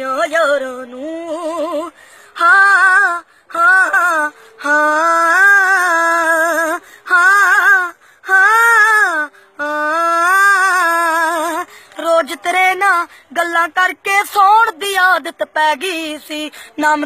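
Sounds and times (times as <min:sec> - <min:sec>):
boy singing unaccompanied: 0:00.0 - 0:17.0
short breaths: 0:01.9 - 0:02.4, 0:04.3 - 0:04.6, 0:06.8 - 0:07.1, 0:08.0 - 0:08.3, 0:09.3 - 0:09.6, 0:11.6 - 0:12.0, 0:13.1 - 0:13.3, 0:16.5 - 0:16.8.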